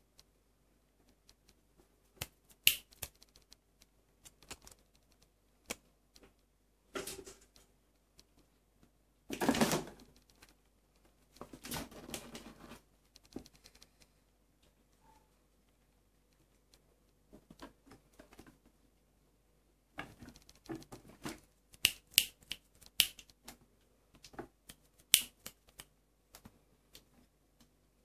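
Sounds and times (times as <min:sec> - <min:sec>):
kitten tapping and clicking: 0:02.2 - 0:06.4, 0:20.0 - 0:21.0, 0:21.7 - 0:23.6, 0:24.2 - 0:27.1.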